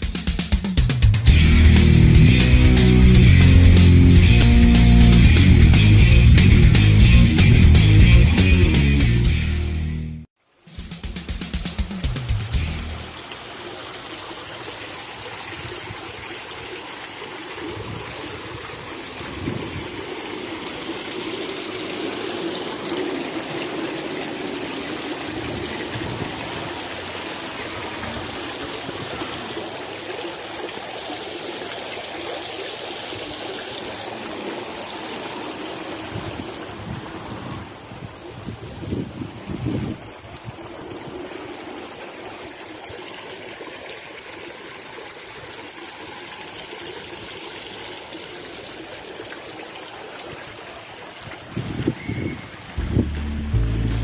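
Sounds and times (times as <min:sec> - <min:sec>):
fountain water splashing: 0:00.0 - 0:08.3, 0:11.5 - 0:54.0.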